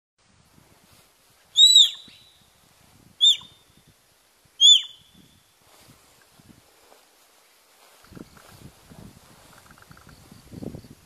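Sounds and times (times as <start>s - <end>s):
deer stag whistling calls: 1.6s - 2.4s, 3.2s - 3.7s, 4.6s - 5.2s.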